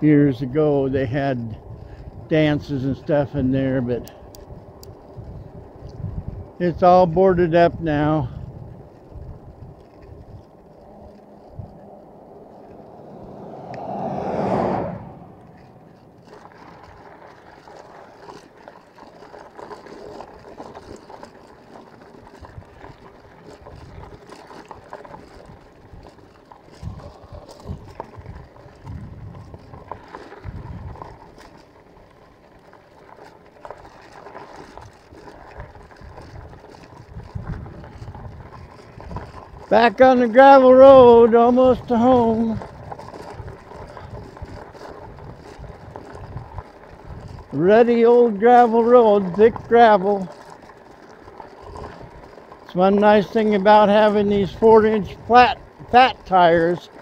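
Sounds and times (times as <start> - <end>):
wind buffeting microphone: 0.0 - 17.4, 22.3 - 31.6, 34.8 - 57.0
bicycle tyres rolling on road: 0.0 - 57.0
loud rushing swell: 11.8 - 16.3.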